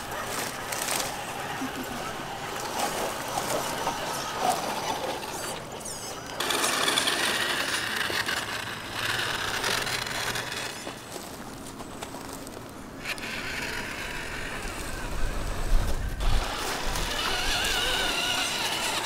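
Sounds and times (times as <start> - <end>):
toy truck motors whining: 0.0 - 11.4, 13.0 - 19.0.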